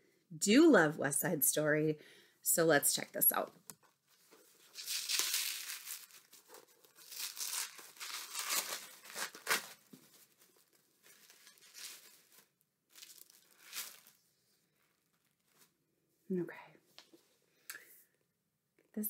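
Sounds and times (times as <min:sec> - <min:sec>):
paper wrapping tearing and crinkling: 0:04.6 - 0:14.2.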